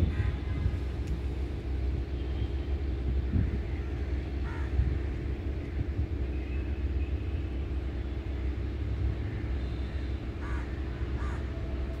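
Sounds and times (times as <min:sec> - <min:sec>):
crow cawing: 0:04.4 - 0:04.7, 0:10.4 - 0:11.5.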